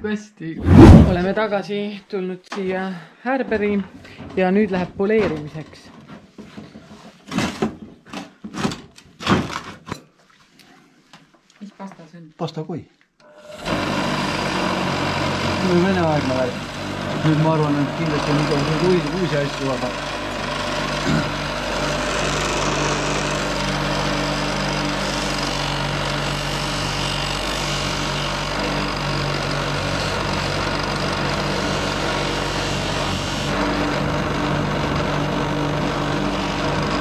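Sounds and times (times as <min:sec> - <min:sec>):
polisher motor hum: 0:13.4 - 0:37.0.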